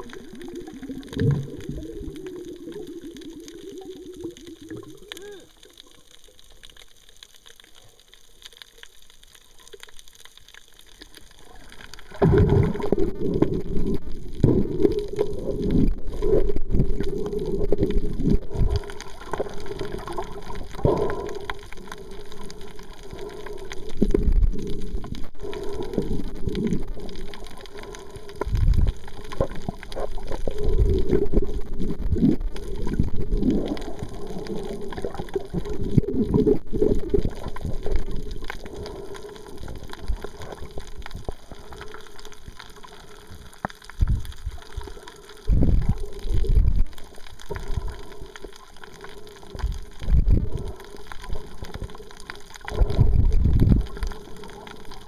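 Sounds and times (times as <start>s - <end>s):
muffled underwater swishing and gurgling: 11.2s - 55.0s.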